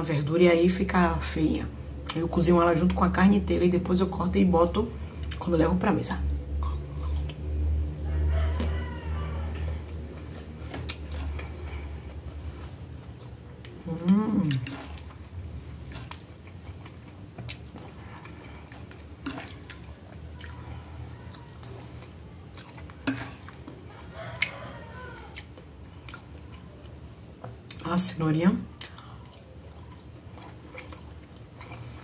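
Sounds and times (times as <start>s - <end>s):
quiet chewing: 6.4s - 27.8s, 28.7s - 32.0s.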